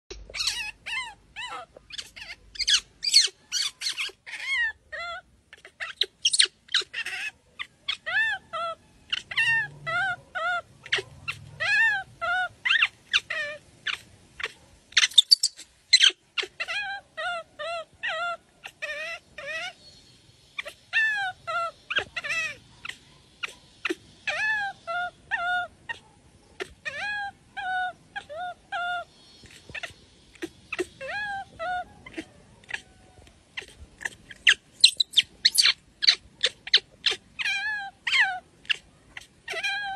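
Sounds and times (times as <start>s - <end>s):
baby monkey whimpering cries: 0.3s - 19.8s, 20.6s - 39.9s.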